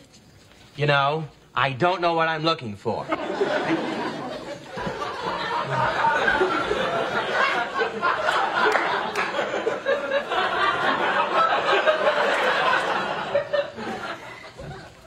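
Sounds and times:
audience laughing: 3.0 - 15.0.

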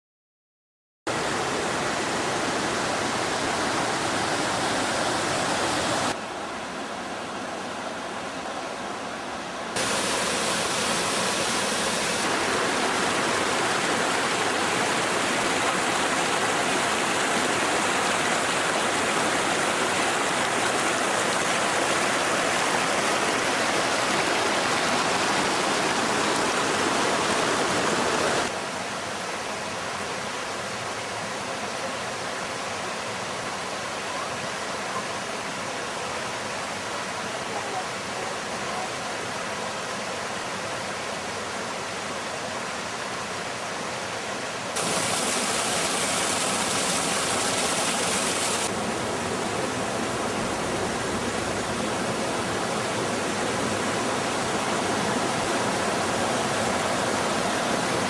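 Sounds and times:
rushing river water: 1.1 - 58.0.

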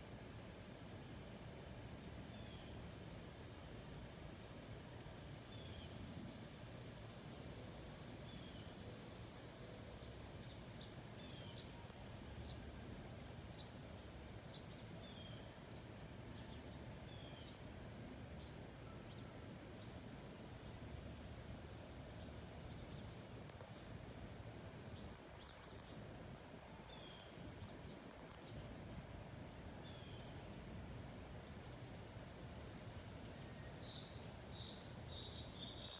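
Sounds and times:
insects trilling: 7.8 - 35.9.

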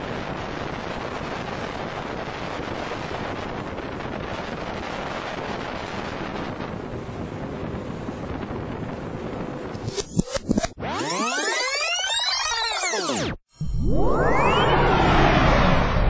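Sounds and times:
wind buffeting microphone: 0.0 - 9.8.

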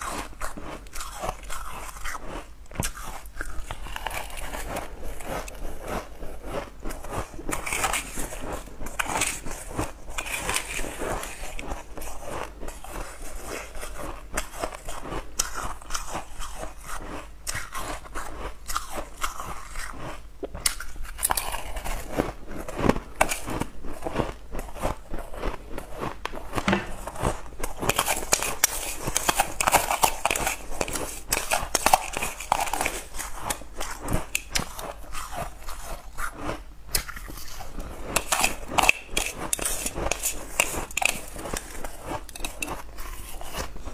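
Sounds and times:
ice being chewed: 0.0 - 43.9.

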